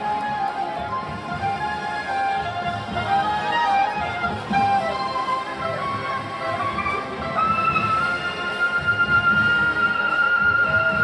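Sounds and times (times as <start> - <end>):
woodwind long steady note: 0.0 - 11.0.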